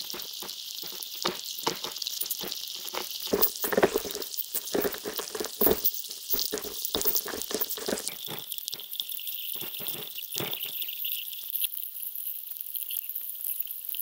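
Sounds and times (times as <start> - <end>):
steady high hiss: 0.0 - 8.5
clusters of knocks: 0.0 - 9.0, 9.6 - 10.9.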